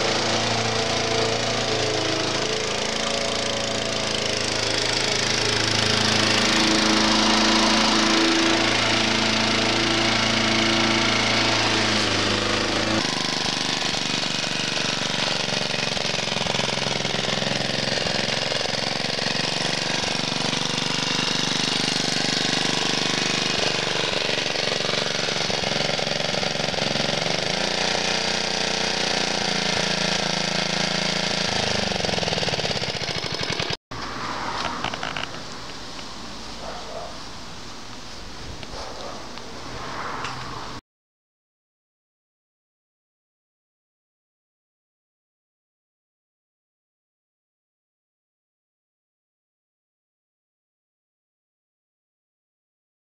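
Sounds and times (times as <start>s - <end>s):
lawn mower engine running: 0.0s - 38.4s.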